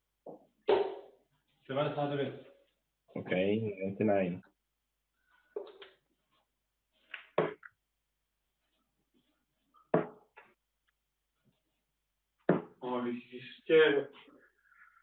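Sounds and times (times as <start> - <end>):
darts thudding into a dartboard: 0.7 - 1.1, 7.2 - 7.6, 10.0 - 10.2, 12.5 - 12.8.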